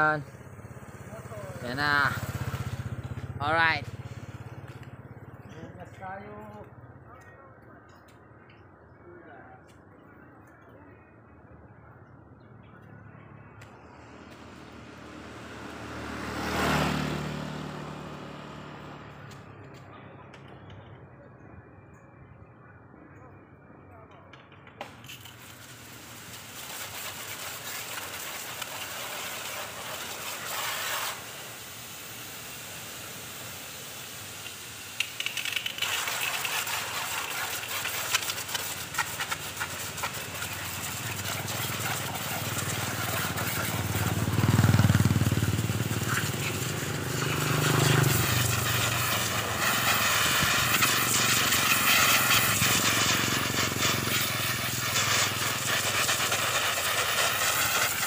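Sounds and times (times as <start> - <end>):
pressure washer spraying water: 25.1 - 58.0.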